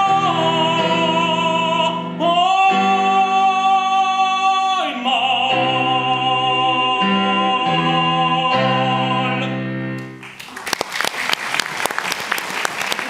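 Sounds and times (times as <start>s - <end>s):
piano chords: 0.0s - 10.3s
audience applause: 10.2s - 13.0s.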